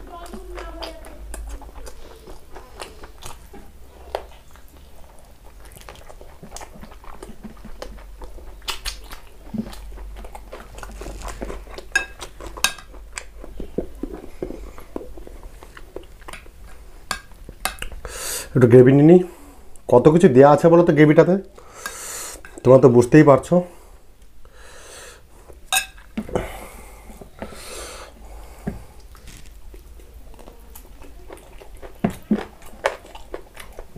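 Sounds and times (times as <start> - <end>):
chewing and lip-smacking: 0.1 - 18.1, 29.0 - 33.9.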